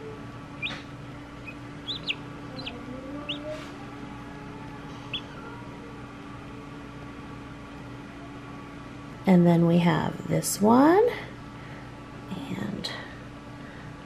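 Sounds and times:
steady low hum: 0.0 - 14.0
chick peeping inside egg: 0.6 - 3.6, 4.7 - 5.4.

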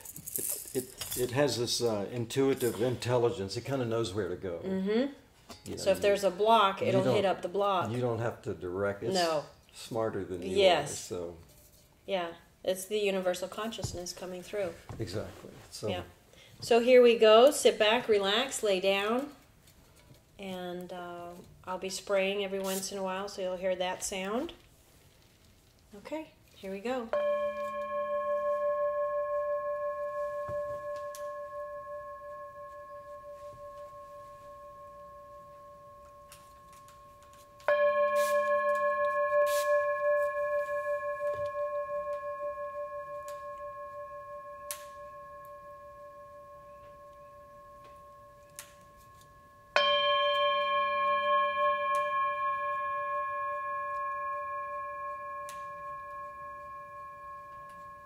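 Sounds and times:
singing bowl ringing: 27.1 - 58.0
wooden mallet striking bowl: 27.1 - 58.0.

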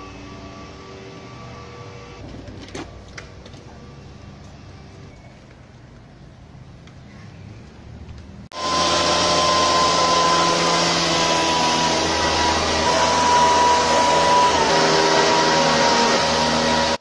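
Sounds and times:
mist blower engine whining: 8.5 - 17.0.

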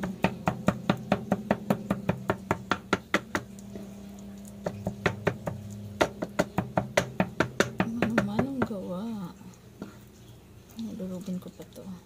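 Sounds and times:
knife chopping on board: 0.0 - 3.5, 4.6 - 8.8.

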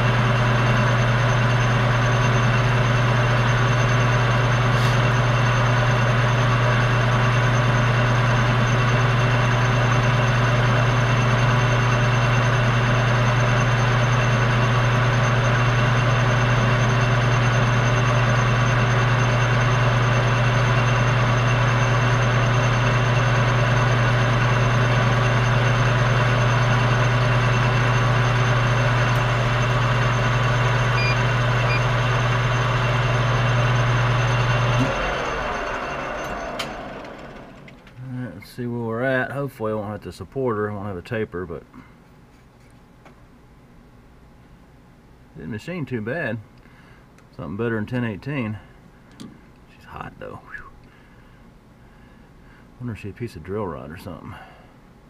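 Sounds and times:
metal lathe humming: 0.0 - 38.0.

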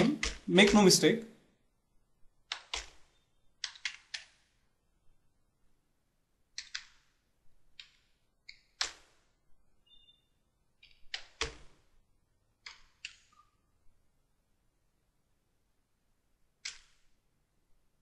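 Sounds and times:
keyboard keystrokes clicking: 0.0 - 0.8, 2.5 - 4.4, 6.6 - 7.0, 16.6 - 17.0.

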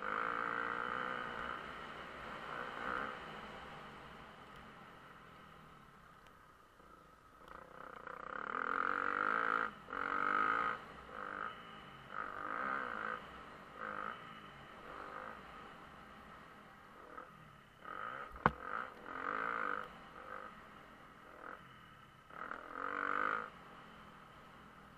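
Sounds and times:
motocross bike engine revving: 0.0 - 3.5, 7.5 - 15.8, 17.0 - 20.6, 22.3 - 23.7.

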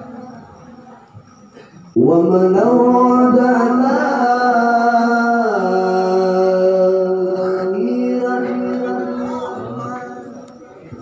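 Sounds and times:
man reciting melodically: 1.9 - 11.0.

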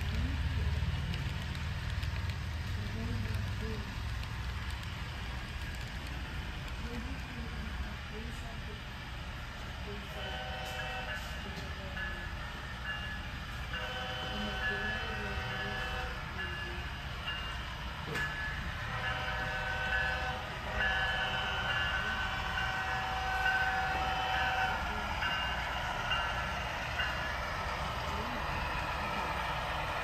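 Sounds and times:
low engine rumble: 0.0 - 10.0
model locomotive horn: 10.1 - 11.2, 13.7 - 16.2, 18.9 - 24.8.

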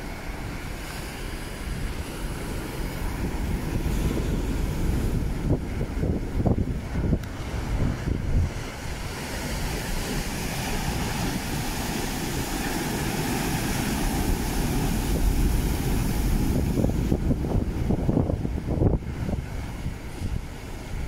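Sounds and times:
waves breaking on rocks: 0.0 - 21.0
wind rumble on microphone: 0.0 - 21.0.

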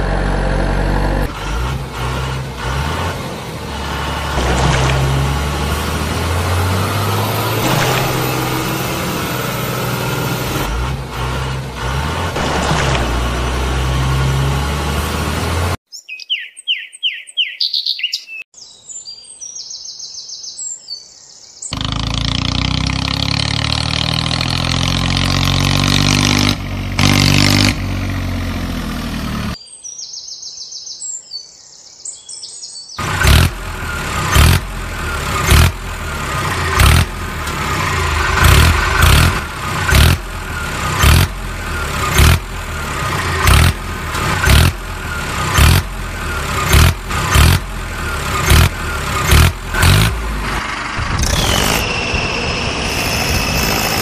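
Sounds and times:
engine running: 0.0 - 15.8, 21.7 - 29.6, 33.0 - 54.0
engine sound falling in pitch: 0.0 - 15.8, 21.7 - 29.6, 33.0 - 54.0
bird chirps: 15.9 - 21.8, 29.6 - 33.0
tractor engine chugging: 33.0 - 54.0.

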